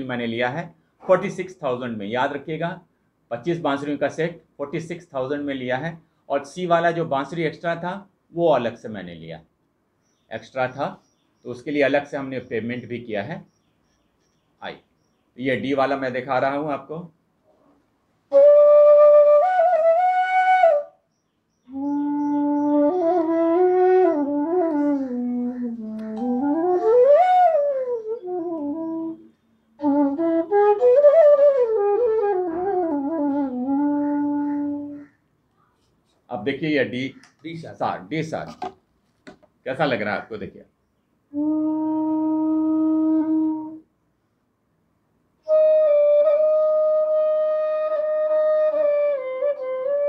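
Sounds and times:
low bamboo flute melody: 18.3 - 21.0, 21.7 - 35.0, 41.3 - 43.9, 45.4 - 50.0
flute player's breath: 24.7 - 27.2.

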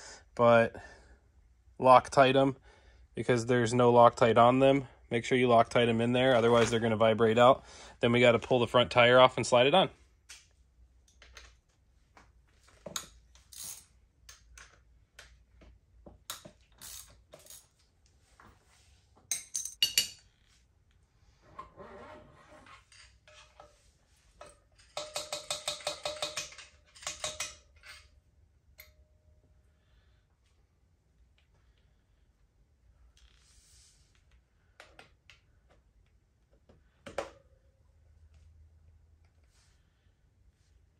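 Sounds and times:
metal tools clinking and knocking: 12.9 - 14.8, 19.3 - 20.5, 22.8 - 23.8, 24.4 - 29.1.

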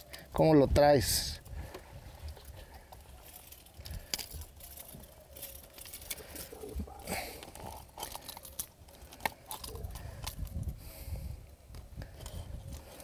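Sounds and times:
clicks and rustling: 1.6 - 10.6.

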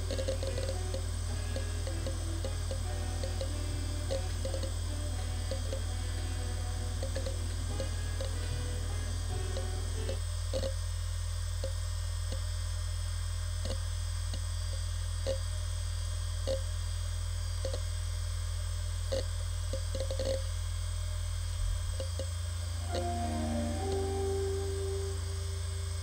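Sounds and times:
hard drive spinning hum: 0.0 - 26.0
hard drive head ticks: 0.1 - 10.8.

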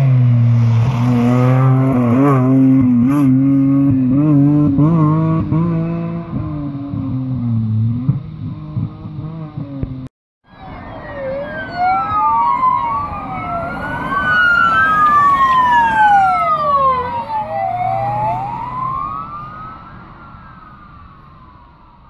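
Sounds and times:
police car siren wailing: 10.5 - 22.0.

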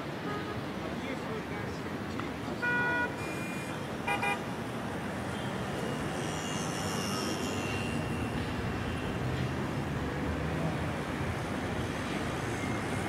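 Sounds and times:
street traffic: 0.0 - 13.0
car horns honking: 2.6 - 4.4.

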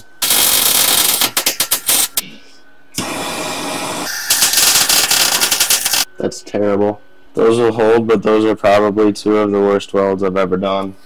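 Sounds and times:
welding arc crackling and spattering: 0.2 - 2.2, 3.0 - 6.1.

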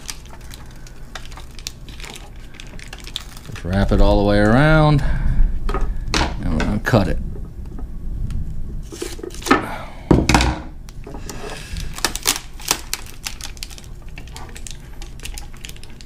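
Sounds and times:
crackly foil clicks: 0.0 - 4.6, 10.9 - 16.0
scissors snipping foil tape: 11.3 - 16.0.

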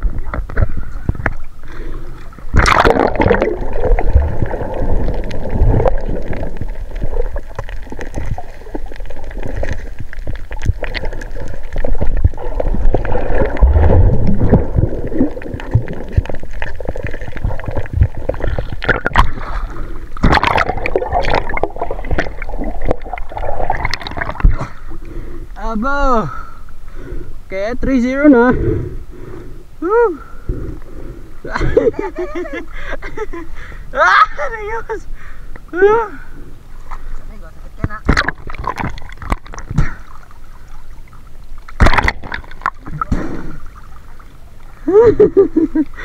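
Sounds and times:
water splashes: 0.0 - 25.4, 36.8 - 46.0
water gurgling and sloshing: 0.0 - 27.5, 35.3 - 46.0.

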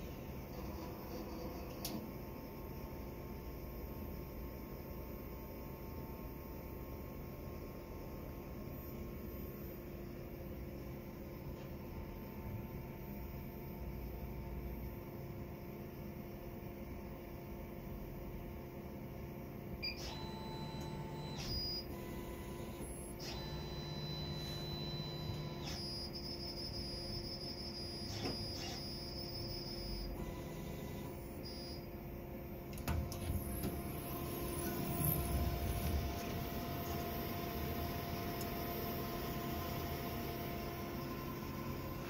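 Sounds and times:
printer fan hum: 0.0 - 42.0
printer motors whining: 19.8 - 31.9, 32.7 - 42.0.

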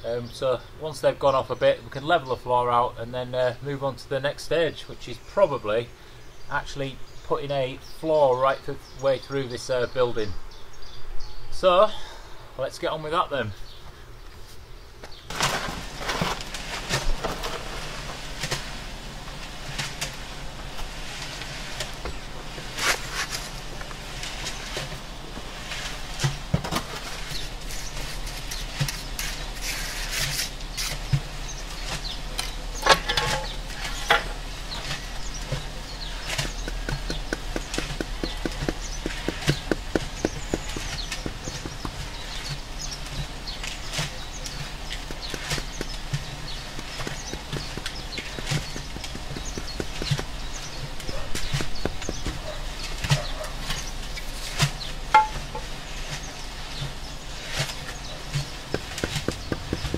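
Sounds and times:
birds chirping: 0.0 - 59.9
trowel scraping mortar: 22.6 - 32.2, 33.0 - 55.3
stone flags knocking: 30.8 - 53.9, 54.5 - 55.8, 56.8 - 59.9
stone slab being tapped: 36.5 - 42.0, 55.2 - 55.4.

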